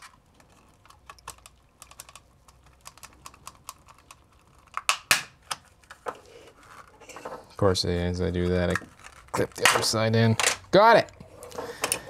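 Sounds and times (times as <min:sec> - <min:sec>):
small plastic clicks and scrapes: 0:00.0 - 0:04.9.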